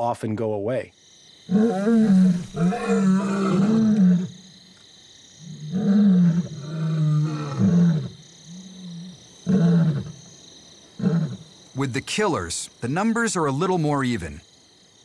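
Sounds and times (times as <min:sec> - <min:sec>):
lion roaring: 0:01.5 - 0:04.3, 0:05.5 - 0:10.1.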